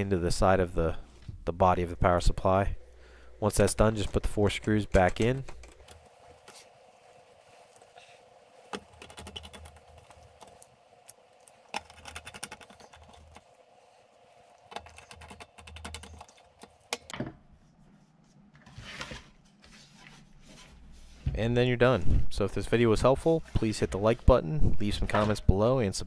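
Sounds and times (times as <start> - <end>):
screwdriver clicking and scraping: 8.7 - 13.4, 14.6 - 17.1.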